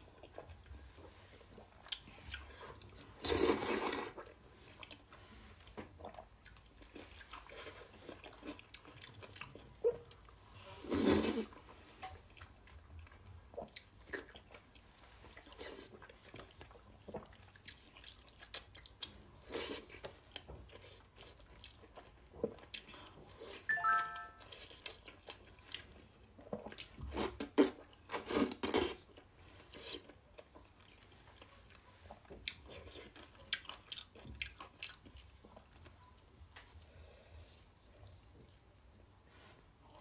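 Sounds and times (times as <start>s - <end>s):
wet chewing: 5.7s - 23.6s, 24.5s - 36.9s.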